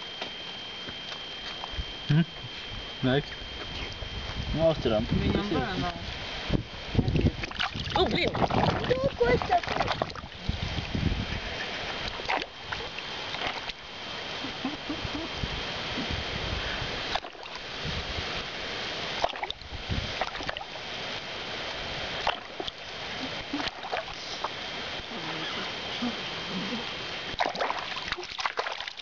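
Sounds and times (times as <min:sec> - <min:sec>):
steady background noise: 0:00.0 - 0:29.0
water splashing in a basin: 0:07.0 - 0:11.0, 0:11.9 - 0:13.8, 0:17.1 - 0:17.7, 0:19.1 - 0:20.8, 0:22.2 - 0:24.6, 0:27.3 - 0:29.0.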